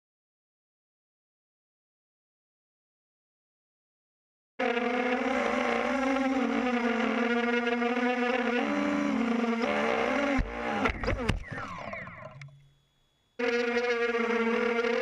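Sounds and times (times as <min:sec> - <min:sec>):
drone motors whining: 0:04.6 - 0:15.0
drone crashing into grass: 0:10.2 - 0:11.8.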